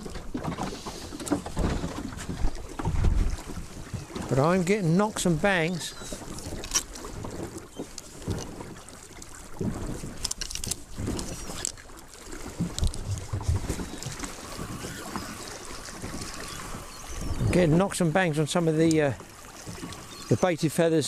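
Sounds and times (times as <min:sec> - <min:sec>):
boat knocking and thumping: 0:00.0 - 0:21.0
choppy water lapping at boat: 0:00.0 - 0:21.0
wind buffeting microphone: 0:01.1 - 0:04.7, 0:12.5 - 0:20.4.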